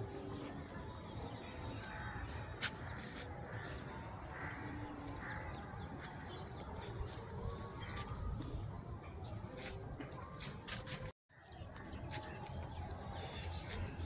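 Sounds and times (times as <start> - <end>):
crows cawing: 1.9 - 5.8.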